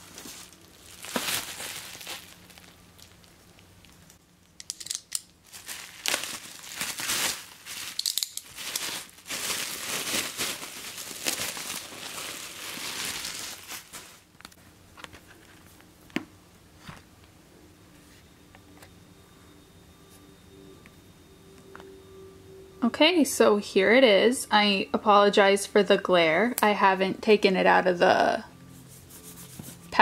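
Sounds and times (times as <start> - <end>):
bubble wrap tearing and crinkling: 0.0 - 3.6, 5.4 - 14.6.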